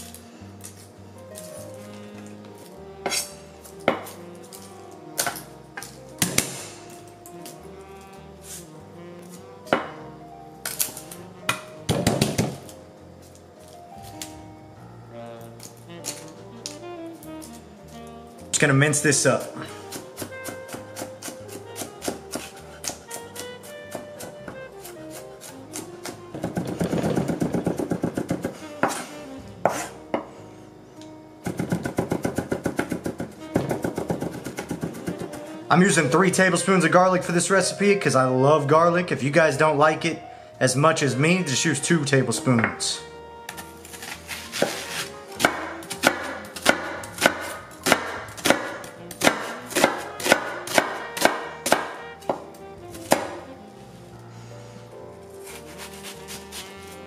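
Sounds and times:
background music: 0:00.0 - 0:57.0
knife chopping on cutting board: 0:03.1 - 0:04.2, 0:10.7 - 0:12.7, 0:19.4 - 0:30.3, 0:31.4 - 0:35.4, 0:43.5 - 0:53.5, 0:55.4 - 0:56.9.

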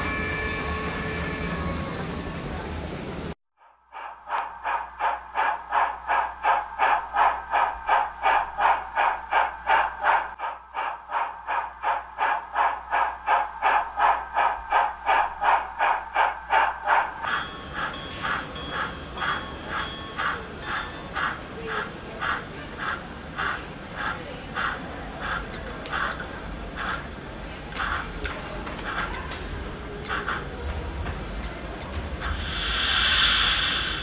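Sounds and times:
steam locomotive chuffing: 0:00.0 - 0:34.0
steady tone: 0:32.2 - 0:34.0.

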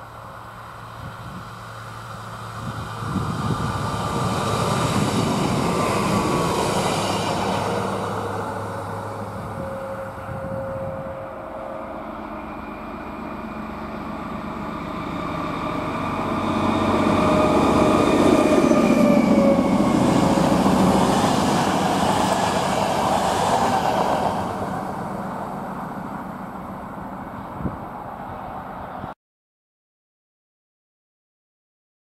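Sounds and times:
passenger train passing: 0:00.0 - 0:29.1.

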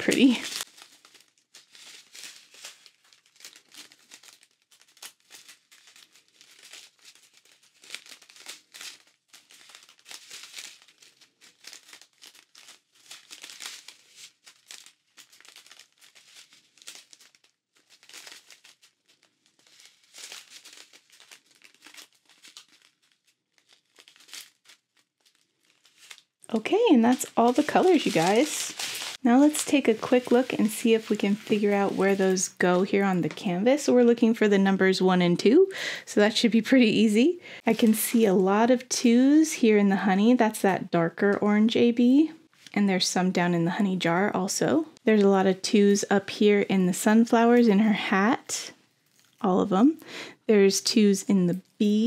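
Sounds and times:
plastic bags crinkling: 0:00.0 - 0:34.0, 0:48.7 - 0:49.4.

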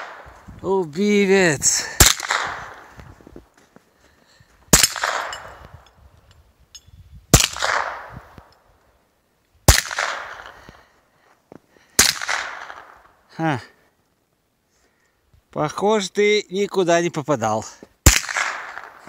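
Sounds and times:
suppressed gunshots: 0:02.0 - 0:02.9, 0:04.7 - 0:05.6, 0:07.3 - 0:08.2, 0:09.7 - 0:10.6, 0:12.0 - 0:13.0, 0:18.0 - 0:19.0.

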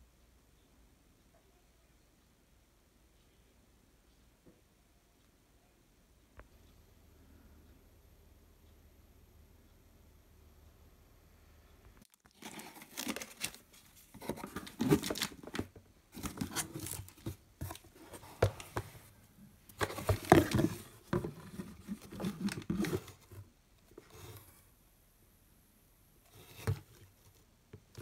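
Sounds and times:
hands rummaging in cardboard box: 0:12.2 - 0:19.0, 0:19.8 - 0:23.3.

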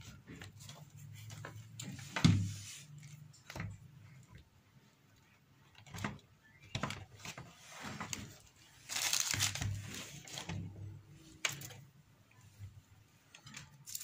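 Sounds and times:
paper and foil wrapping crinkling: 0:07.8 - 0:10.5.

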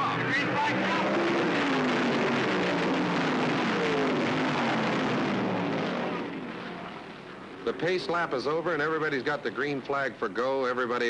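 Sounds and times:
race car engines accelerating: 0:00.0 - 0:06.6.

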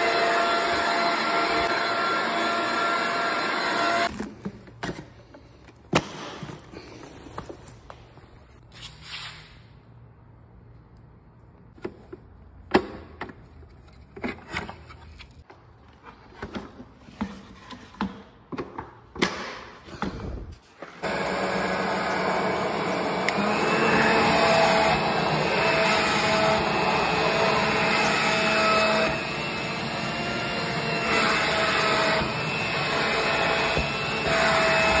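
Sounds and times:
electric blower vacuum running: 0:00.0 - 0:04.1, 0:21.0 - 0:35.0.

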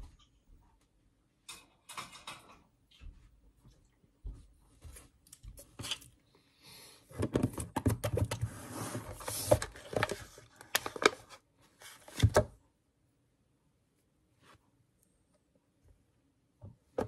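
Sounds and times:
plastic packaging crinkling: 0:09.2 - 0:12.3.

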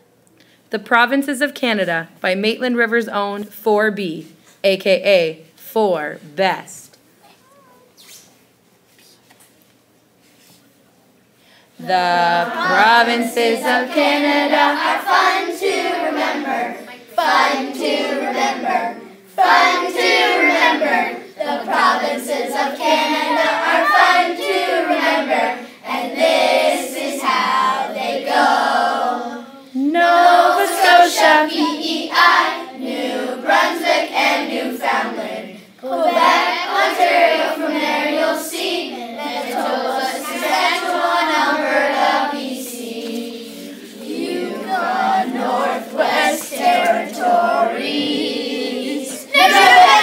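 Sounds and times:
children singing in unison: 0:12.0 - 0:50.0.

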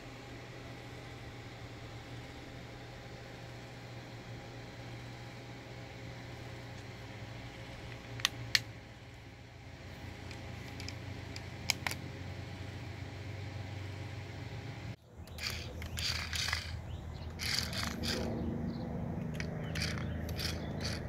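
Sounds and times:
low hum: 0:00.0 - 0:21.0
sharp clicks: 0:15.2 - 0:18.4, 0:19.2 - 0:21.0.

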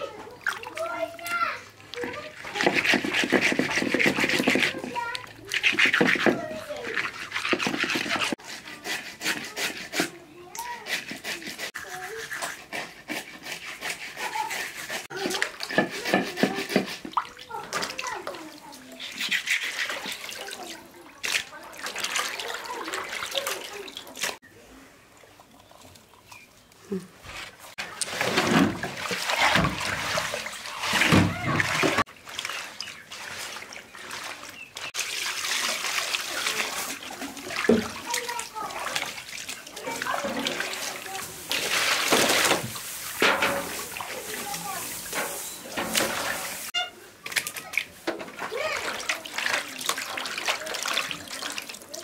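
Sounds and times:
water splashing and trickling: 0:00.0 - 0:52.0
fish scraping on rough concrete: 0:02.0 - 0:21.5.

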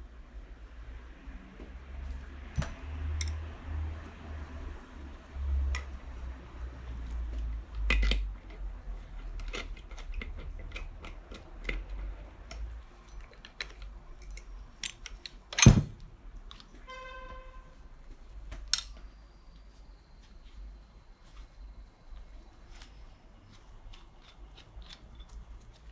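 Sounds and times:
metal tools clicking and knocking: 0:07.5 - 0:16.7.

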